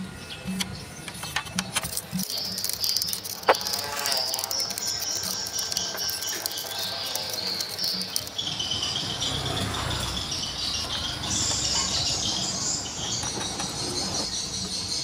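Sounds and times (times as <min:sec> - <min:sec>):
toothbrush scrubbing plastic and metal: 0:01.2 - 0:08.5.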